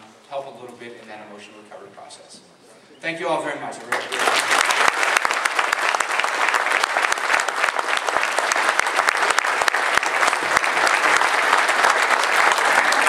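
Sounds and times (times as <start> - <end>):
audience applauding: 3.8 - 13.0.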